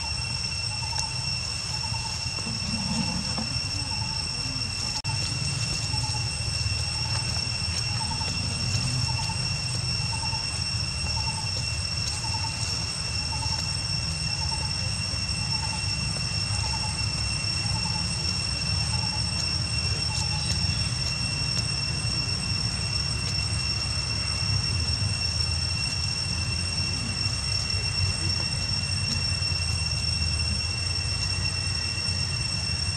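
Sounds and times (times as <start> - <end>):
high-pitched whine: 0.0 - 32.9.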